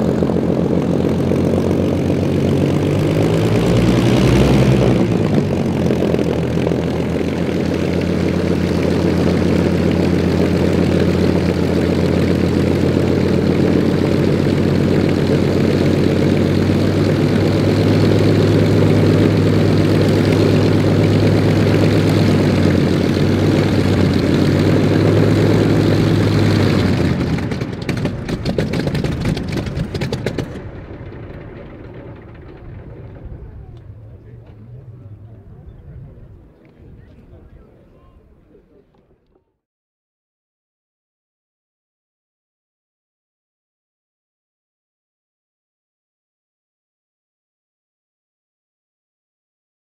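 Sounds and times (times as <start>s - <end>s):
aircraft engine running: 0.0s - 39.4s
engine shutdown pops and clicks: 26.3s - 35.5s.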